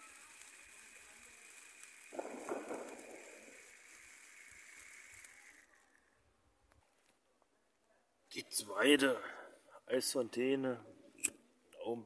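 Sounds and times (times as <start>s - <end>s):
firework hissing: 0.0s - 6.1s.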